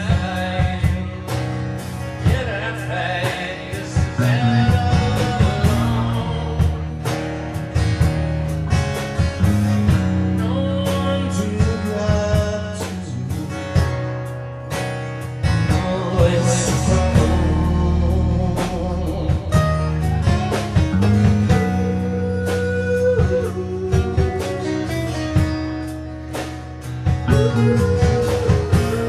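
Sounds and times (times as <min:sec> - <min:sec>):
bass guitar line: 0:00.0 - 0:29.0
guitar playing melodic lines: 0:00.0 - 0:29.0
strummed acoustic guitar: 0:00.0 - 0:29.0.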